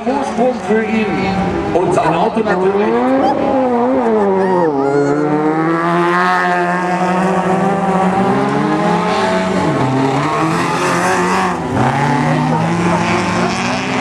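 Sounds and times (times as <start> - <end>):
car engines revving at high revs: 0.0 - 4.4, 5.1 - 14.0.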